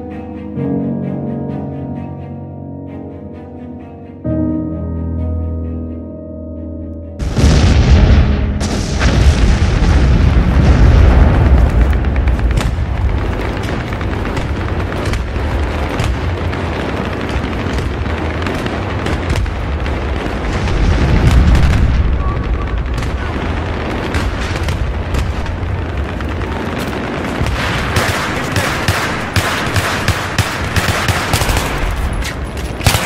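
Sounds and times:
explosion boom: 7.2s - 28.0s
low rumble: 7.2s - 28.0s
gunfire: 8.5s - 33.0s.

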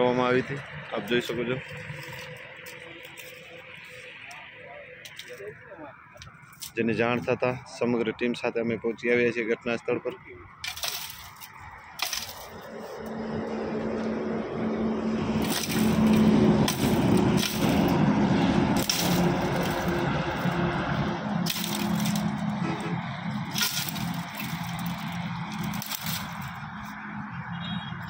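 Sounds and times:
mechanical drone with low hum: 9.1s - 27.8s
sharp cracks: 15.4s - 26.9s.

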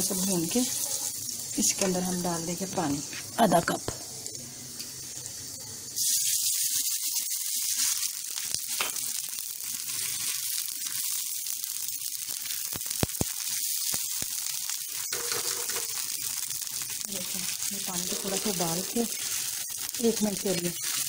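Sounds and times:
water sizzling in hot oil: 0.0s - 21.0s
spatula stirring in pan: 17.8s - 21.0s.

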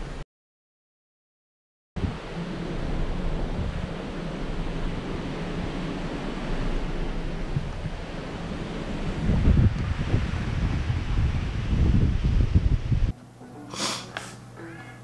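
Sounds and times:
seawater rushing along ship hull: 2.0s - 13.1s
wind buffeting microphone: 2.0s - 13.1s.

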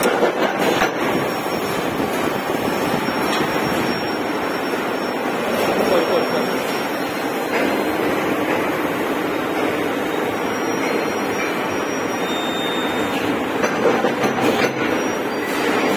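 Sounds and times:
machinery hum with high tones: 0.0s - 15.9s.

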